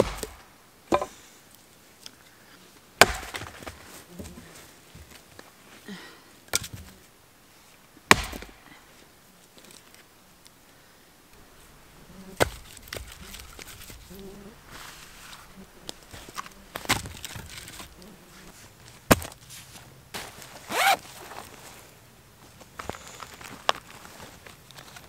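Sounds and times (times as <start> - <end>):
hatchet chopping wood: 0.0 - 1.1, 3.0 - 3.7, 8.1 - 8.6, 12.4 - 13.7, 19.1 - 19.4
wood pieces knocking: 0.0 - 1.2, 16.0 - 18.0.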